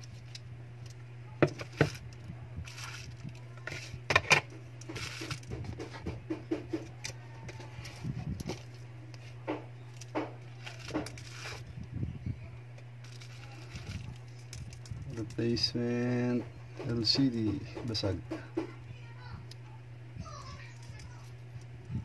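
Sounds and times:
bubble wrap rustling: 0:01.6 - 0:04.0, 0:04.9 - 0:05.5, 0:09.9 - 0:11.7, 0:13.0 - 0:15.7
hard panels clicking and tapping: 0:16.2 - 0:18.8.

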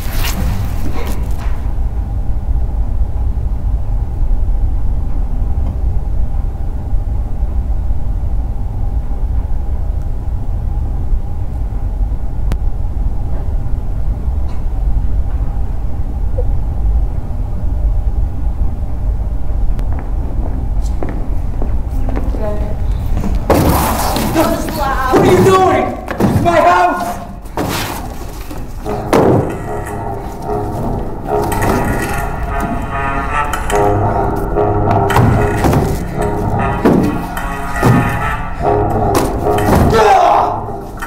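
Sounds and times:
low rumble: 0:00.0 - 0:26.3
faint hum: 0:00.0 - 0:41.0.

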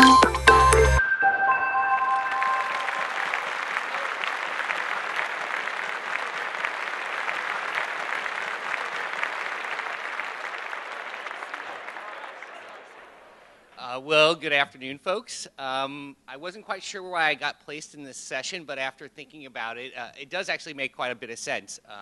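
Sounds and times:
audience applauding: 0:01.9 - 0:13.8.

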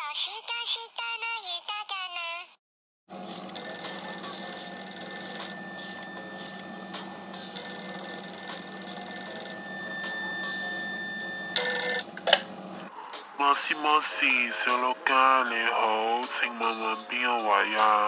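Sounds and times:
steady low hum: 0:03.2 - 0:13.0
telephone ringing: 0:03.4 - 0:12.1.

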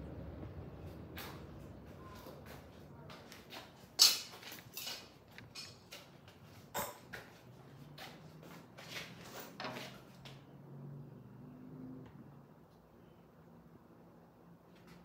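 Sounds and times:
faint low hum: 0:00.0 - 0:03.9, 0:10.5 - 0:15.0.

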